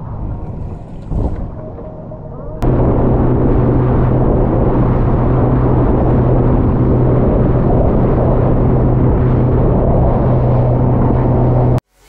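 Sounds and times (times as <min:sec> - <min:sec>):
motorboat engine running: 0:00.0 - 0:11.8
loud rushing noise: 0:00.0 - 0:12.0.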